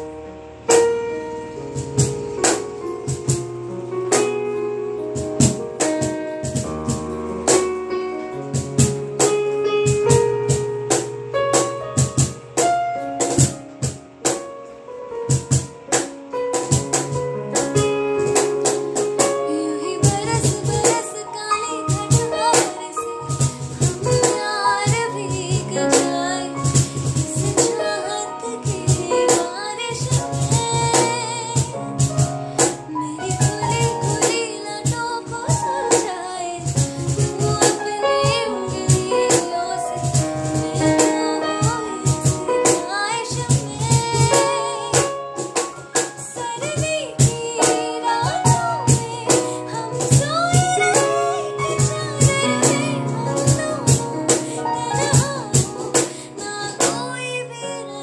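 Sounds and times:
electronic keyboard playing: 0.0 - 58.0
woman singing: 17.7 - 58.0.

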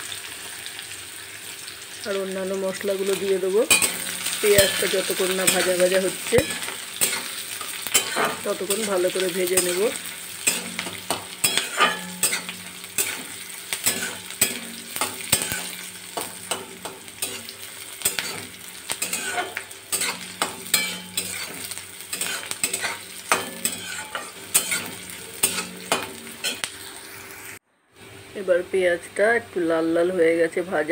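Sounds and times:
onions sizzling in hot oil: 0.0 - 27.6
metal spatula scraping a pan: 3.1 - 27.2.

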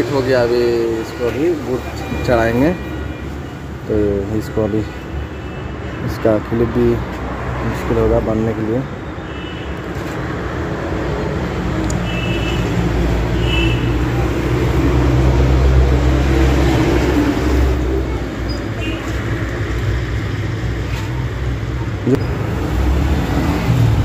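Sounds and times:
engine rumbling: 10.7 - 24.0.

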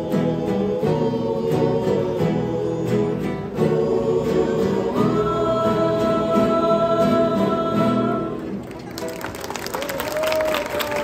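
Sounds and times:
men singing together: 0.0 - 8.5.

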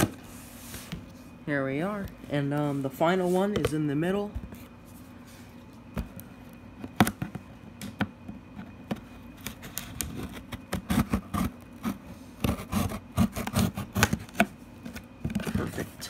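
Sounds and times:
cardboard and tape scraping: 9.4 - 16.0
box seal being cut: 10.4 - 14.3.

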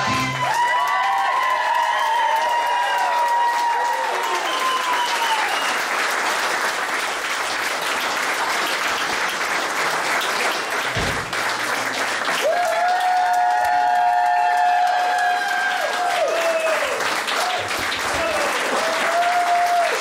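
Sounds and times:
dance music: 0.0 - 0.5
audience applauding: 0.0 - 20.0
low thump: 10.9 - 11.4.

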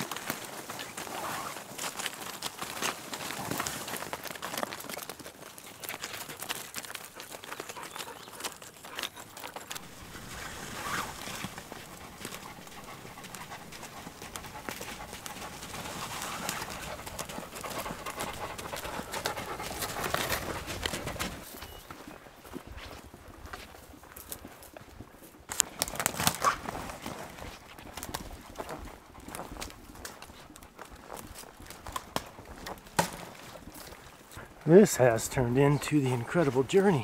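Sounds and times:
brush swishing against packs: 0.0 - 2.1, 7.5 - 21.7
hooves and footsteps on rocky trail: 0.0 - 37.0.

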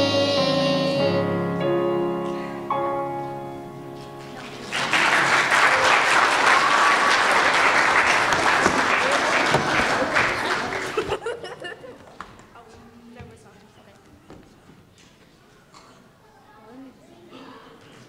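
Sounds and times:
congregation applauding: 4.2 - 11.4.

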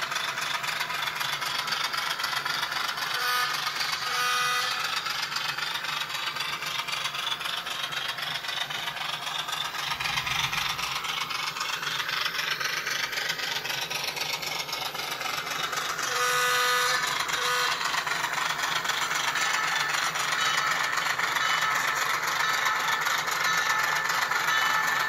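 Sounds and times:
diesel engine sound from small speaker: 0.0 - 25.0
model train wheels clattering: 0.0 - 25.0
train horn blasts: 3.2 - 4.8, 16.1 - 17.8.

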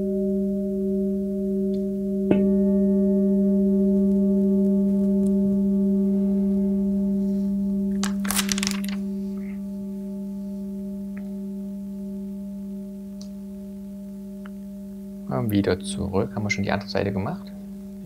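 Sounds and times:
singing bowl ringing: 0.0 - 7.9
brief rustle: 8.0 - 9.0.

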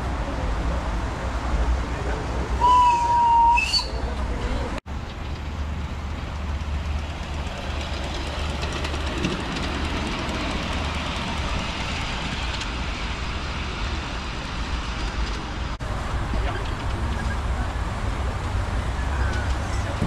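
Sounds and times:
wheels rolling over rails: 5.0 - 12.8
miniature steam locomotive running: 5.0 - 15.6.

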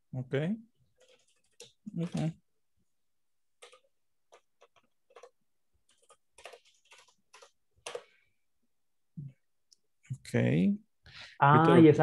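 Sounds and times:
computer keyboard typing: 0.9 - 2.3, 3.6 - 8.2.

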